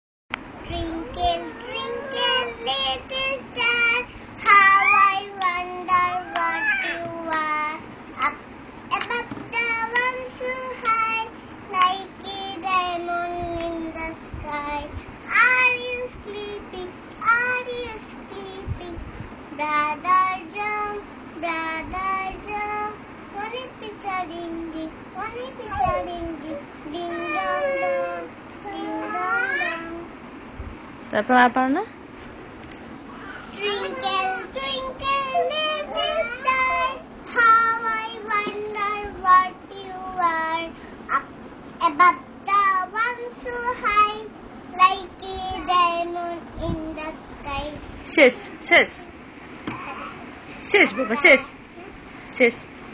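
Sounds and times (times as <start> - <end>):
small girl singing: 0.6 - 30.1, 33.4 - 47.8.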